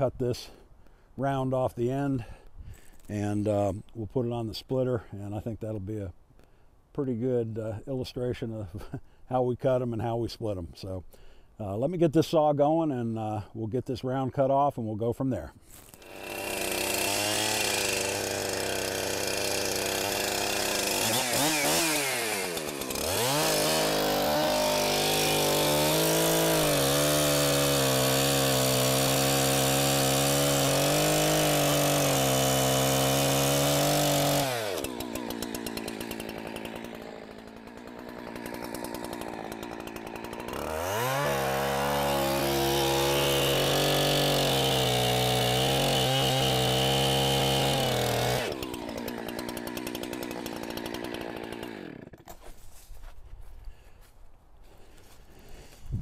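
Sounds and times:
chainsaw cutting log: 15.6 - 53.8.

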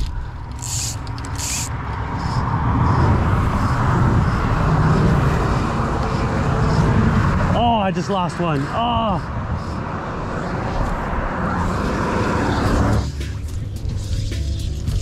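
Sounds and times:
highway traffic passing: 0.0 - 15.0.

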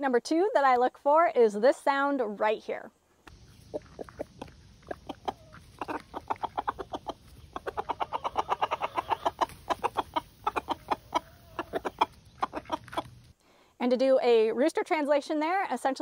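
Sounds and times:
rooster clucking rapidly: 3.4 - 13.3.

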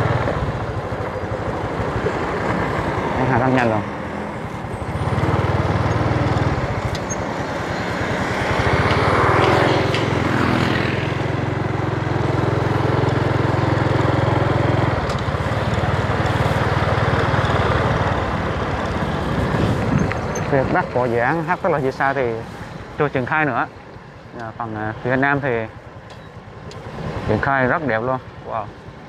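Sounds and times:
motorbike engine running: 0.0 - 20.9
loud rushing sound: 2.2 - 21.6
wind on microphone: 18.9 - 20.9.

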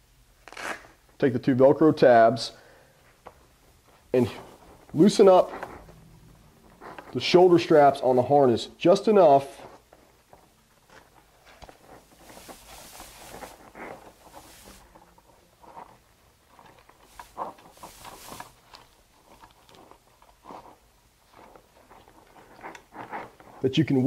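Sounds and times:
webbing rustling and sliding: 3.8 - 10.5, 11.4 - 24.0
webbing rasping stretches: 4.2 - 8.2.

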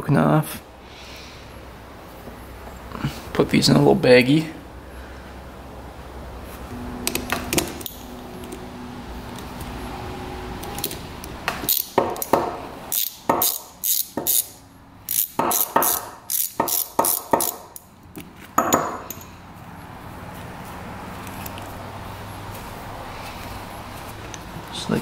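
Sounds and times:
metallic clicks of hand tools: 10.6 - 19.3.

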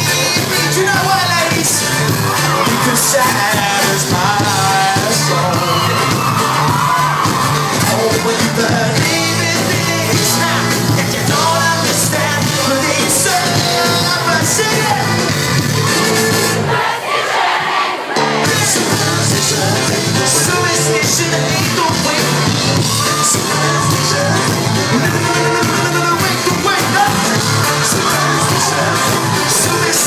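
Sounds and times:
man singing: 0.0 - 15.4, 18.4 - 30.0
crowd shouting: 0.0 - 30.0
live pop band playing: 0.0 - 30.0.

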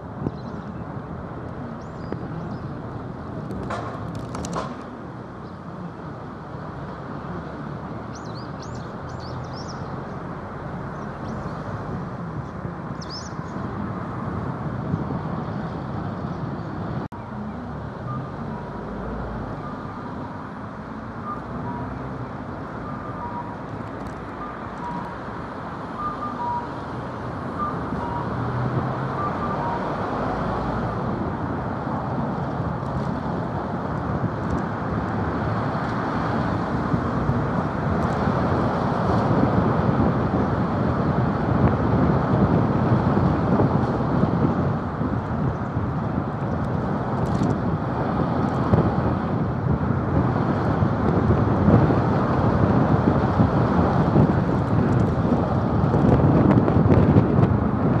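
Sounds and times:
tyre and wind rush: 23.7 - 58.0.

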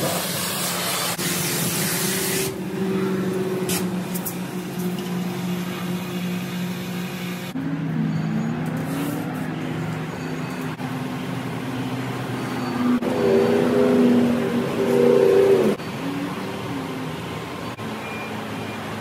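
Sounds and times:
pressure washer spray hissing: 0.0 - 2.6.

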